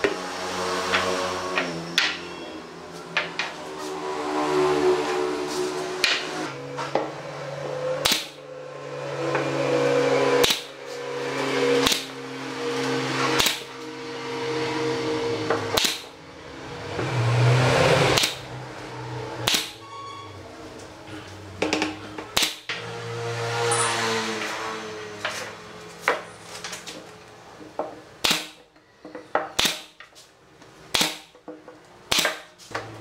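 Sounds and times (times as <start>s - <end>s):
nail gun shots: 8.0s - 8.4s, 10.4s - 10.7s, 11.8s - 12.1s, 13.4s - 13.7s, 15.8s - 16.1s, 18.2s - 18.4s, 19.4s - 19.8s, 22.3s - 22.7s, 28.2s - 28.6s, 29.6s - 30.0s, 30.9s - 31.3s, 32.1s - 32.5s.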